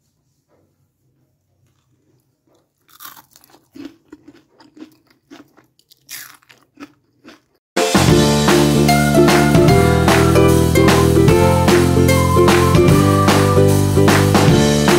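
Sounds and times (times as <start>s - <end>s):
crunching snack: 1.6s - 7.6s
loud music: 7.8s - 14.9s.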